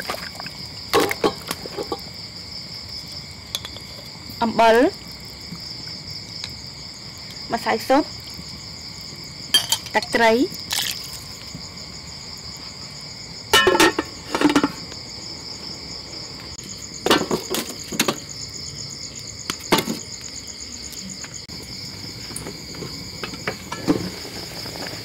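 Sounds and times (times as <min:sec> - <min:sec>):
insects chirping: 0:00.0 - 0:25.0.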